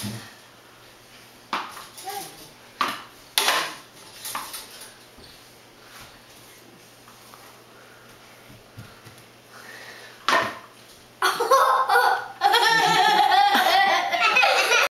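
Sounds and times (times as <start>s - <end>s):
young children laughing and shrieking: 11.2s - 14.9s.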